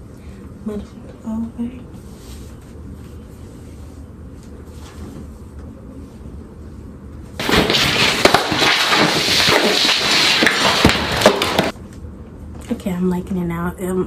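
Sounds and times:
loud crash: 7.4s - 11.7s.

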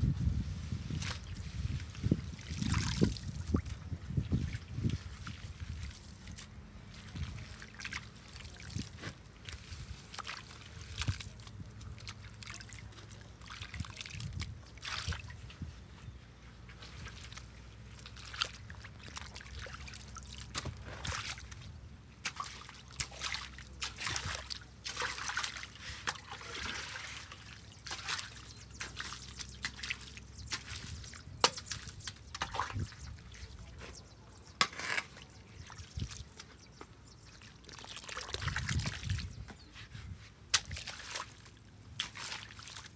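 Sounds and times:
muddy water trickling: 0.6s - 15.6s, 16.7s - 39.5s, 40.5s - 42.9s
tool scraping through mud: 34.6s - 35.4s.

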